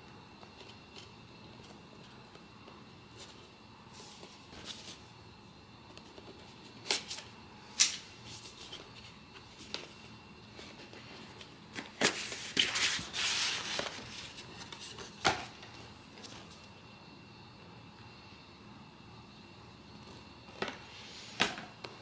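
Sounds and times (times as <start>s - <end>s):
cardboard rustling and scraping: 3.1s - 5.1s, 8.2s - 15.5s.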